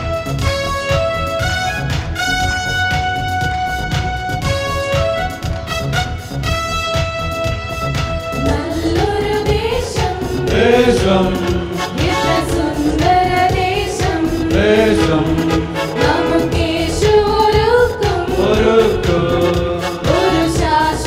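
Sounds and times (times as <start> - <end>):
instrumental accompaniment: 0.0 - 21.0
men singing a hymn: 10.2 - 21.0.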